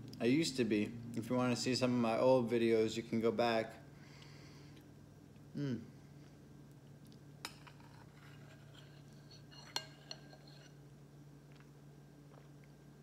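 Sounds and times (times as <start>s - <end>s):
faint steady hum: 0.0s - 13.0s
cutlery clinking against bowl: 7.4s - 10.8s.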